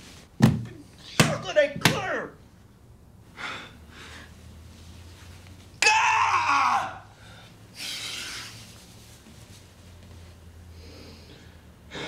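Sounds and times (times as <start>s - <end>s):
heavy ragged breathing: 3.3s - 4.4s.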